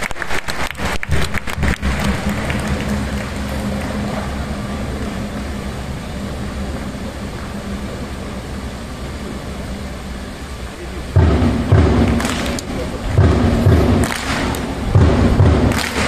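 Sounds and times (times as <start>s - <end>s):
stadium crowd clapping: 0.0s - 5.7s, 11.3s - 16.0s
faint low hum: 0.0s - 16.0s.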